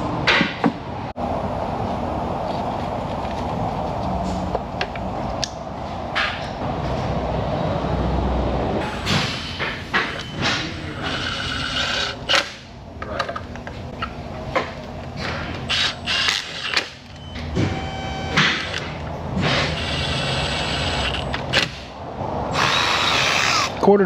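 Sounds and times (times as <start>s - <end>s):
small power tool whirring: 19.5s - 21.3s, 22.6s - 23.8s.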